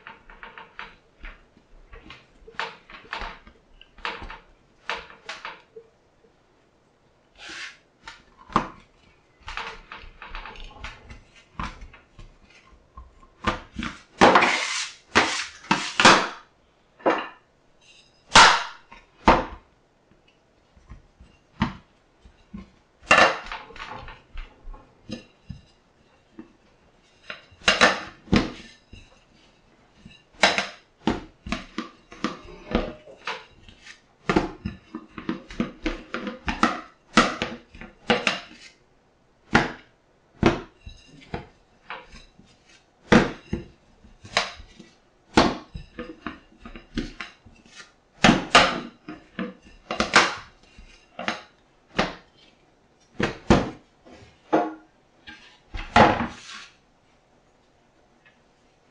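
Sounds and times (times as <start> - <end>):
bench scraper scraping steel counter: 7.4 - 8.2, 13.8 - 16.4, 45.7 - 51.4, 56.2 - 56.8.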